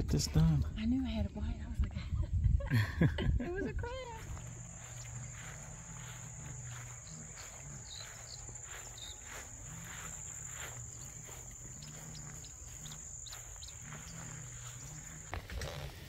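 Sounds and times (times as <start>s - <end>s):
insects trilling: 4.1s - 16.0s
low hum: 4.1s - 16.0s.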